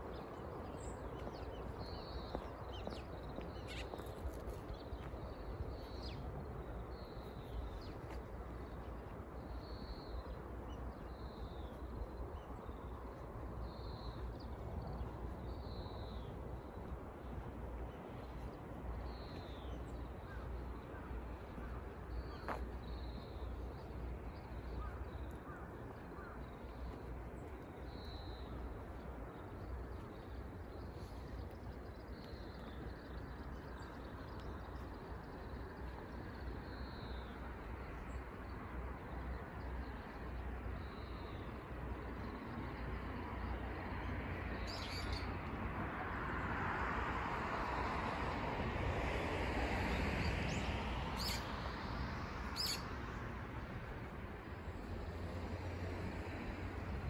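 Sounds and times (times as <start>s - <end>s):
small birds chirping: 0.0s - 17.4s, 50.5s - 51.5s, 52.5s - 53.0s
low outdoor rumble: 0.0s - 46.2s, 47.3s - 57.0s.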